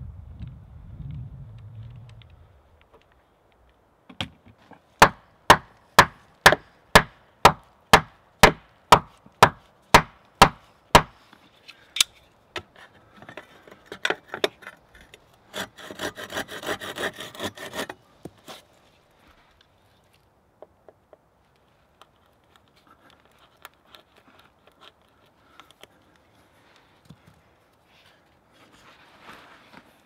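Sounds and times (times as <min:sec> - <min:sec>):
axe chopping into log: 0:05.0 - 0:11.1
pruning saw cutting wood: 0:15.5 - 0:18.0.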